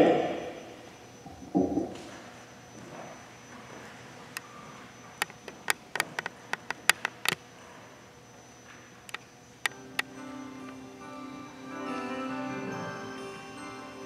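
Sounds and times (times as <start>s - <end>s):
sharp irregular clicks: 5.2s - 7.4s.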